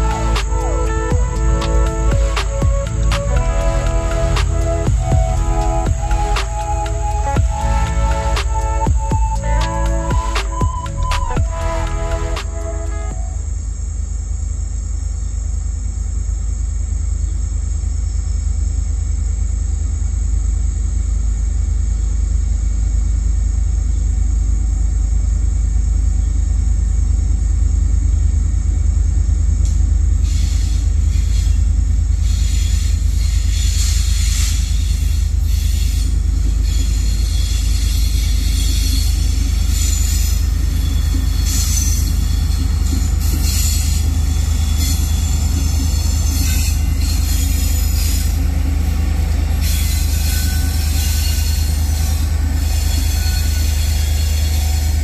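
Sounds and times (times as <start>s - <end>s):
diesel locomotives rumbling: 0.0s - 55.0s
train wheels clattering on rails: 29.6s - 55.0s.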